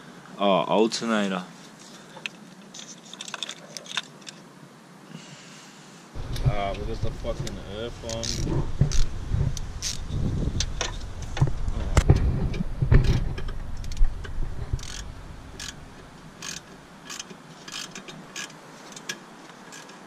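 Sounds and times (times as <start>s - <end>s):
heavy knocks and handling: 6.2s - 16.8s.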